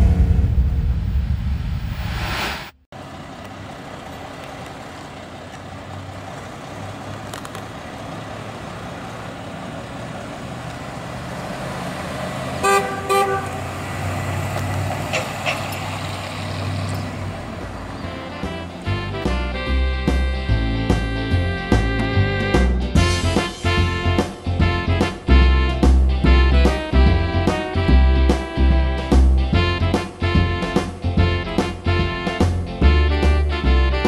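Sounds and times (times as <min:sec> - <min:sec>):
car horn toots: 0:12.6 - 0:13.7.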